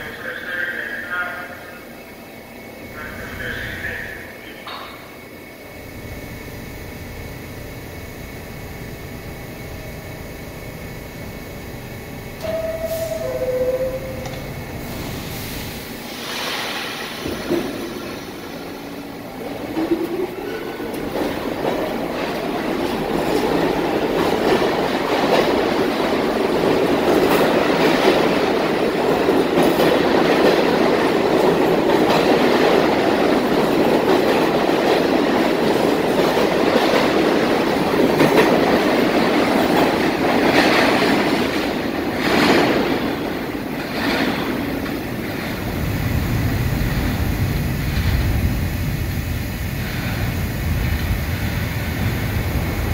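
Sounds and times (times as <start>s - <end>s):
deep rumble of approaching train: 0.0s - 52.9s
subway train pulling out: 0.0s - 52.9s
wheels squealing on rails: 12.4s - 14.4s.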